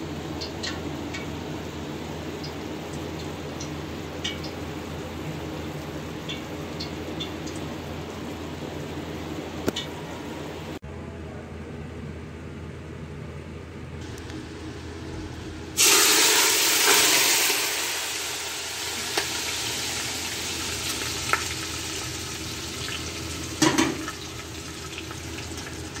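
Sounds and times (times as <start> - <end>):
low steady hum: 0.0 - 26.0
meat sizzling in a pot: 15.8 - 26.0.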